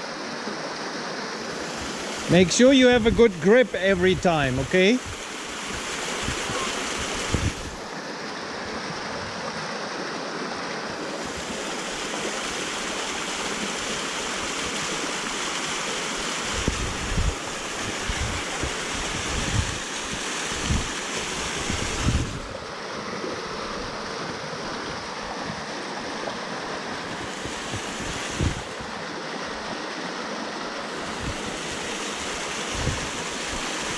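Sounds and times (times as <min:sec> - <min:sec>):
waterfall rushing over rock: 0:00.0 - 0:33.9
wind buffeting microphone: 0:06.2 - 0:07.8, 0:16.5 - 0:22.6, 0:27.0 - 0:28.9, 0:32.7 - 0:33.1.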